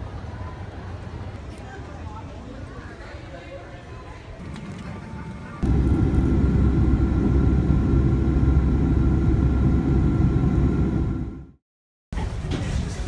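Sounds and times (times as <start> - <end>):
airliner engines rumbling: 4.4 - 11.6
faint steady tones: 5.0 - 11.6.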